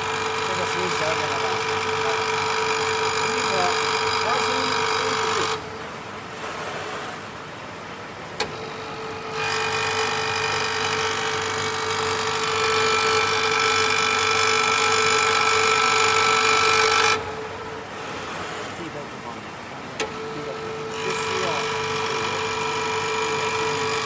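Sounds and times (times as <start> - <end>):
milling cutter high-pitched whine: 0.0 - 7.3, 8.4 - 24.0
machine motor hum: 0.0 - 24.0.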